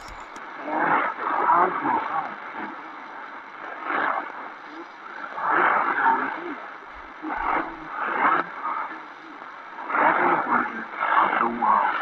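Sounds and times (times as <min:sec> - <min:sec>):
radio voice reading: 0:00.0 - 0:00.4
radio static hiss: 0:00.0 - 0:12.0.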